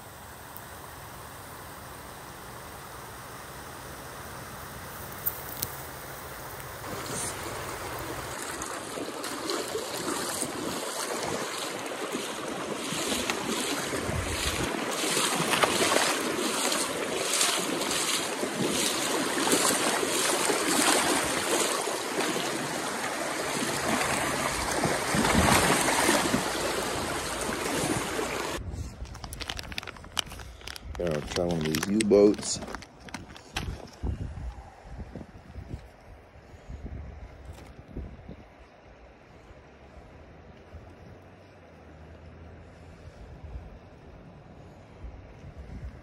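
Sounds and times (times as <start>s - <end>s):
creek water rushing over rocks: 6.8s - 28.6s.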